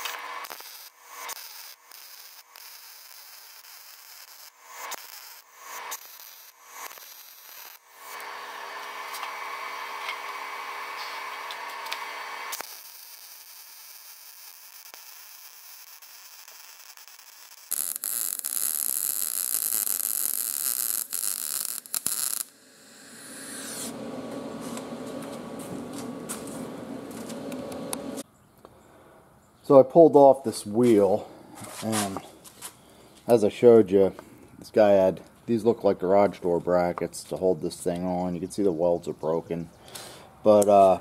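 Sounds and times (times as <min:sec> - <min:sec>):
welder arc crackling and hissing: 0:00.0 - 0:28.2
faint steady hum: 0:22.5 - 0:29.2.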